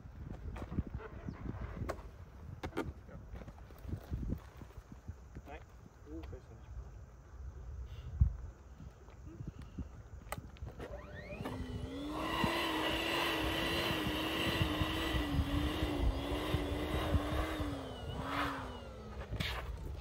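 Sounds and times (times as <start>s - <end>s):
electric air pump running: 10.6s - 20.0s.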